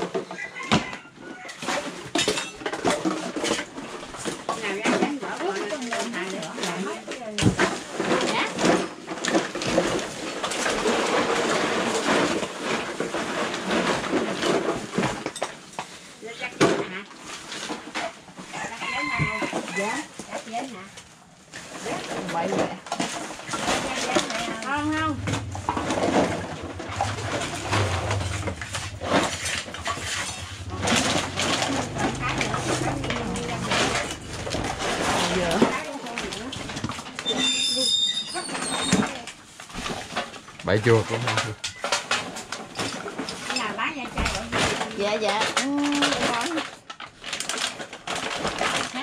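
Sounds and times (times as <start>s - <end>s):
plastic bags rustling: 1.3s - 49.0s
steady low hum: 24.6s - 35.7s.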